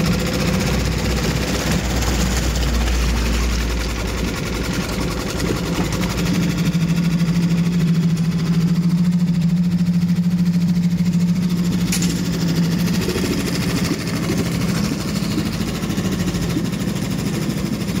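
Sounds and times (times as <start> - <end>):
outboard motor running: 0.0 - 18.0
sharp click: 11.9 - 12.2.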